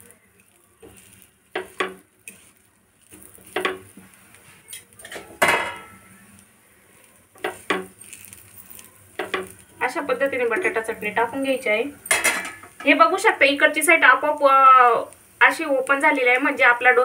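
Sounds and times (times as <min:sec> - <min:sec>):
metal spatula scraping a pan: 0:00.4 - 0:06.1, 0:07.4 - 0:09.7.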